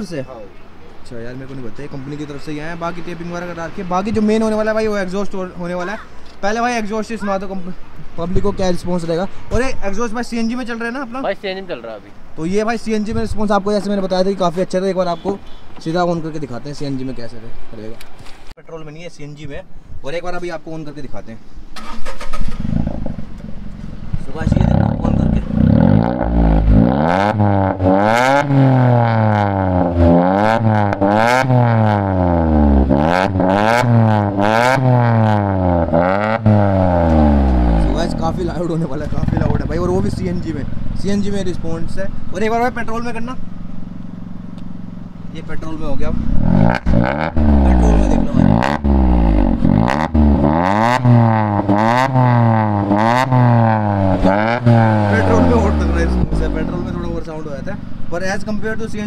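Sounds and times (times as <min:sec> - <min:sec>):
exhaust cracks: 0:21.7 - 0:59.0
car engine revving: 0:21.8 - 0:59.0.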